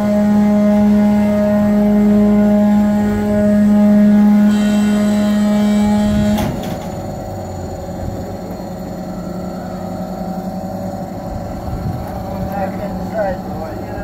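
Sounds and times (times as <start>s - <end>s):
machinery hum with low tone: 0.0s - 14.0s.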